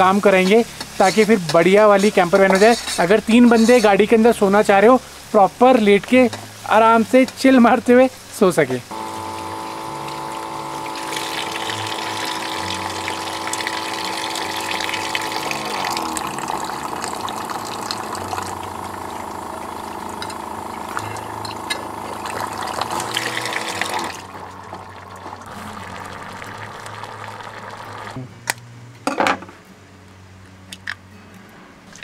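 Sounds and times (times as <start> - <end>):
dishes being rinsed: 0.0 - 4.7
electric water pump humming: 0.0 - 5.5, 7.8 - 28.3
water running from sink tap: 8.4 - 28.2.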